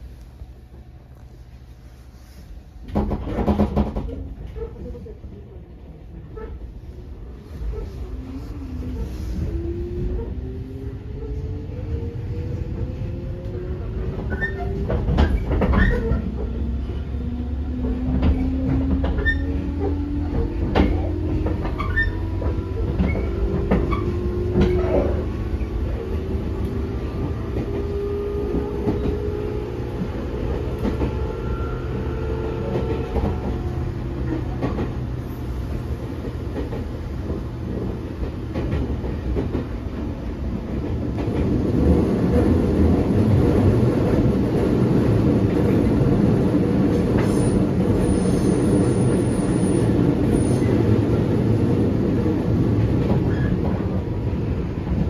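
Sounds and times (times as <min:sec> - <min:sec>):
low train rumble: 0:00.0 - 0:55.0
rail-joint clacks: 0:02.8 - 0:05.1, 0:14.1 - 0:16.6, 0:17.8 - 0:25.7, 0:31.9 - 0:40.1.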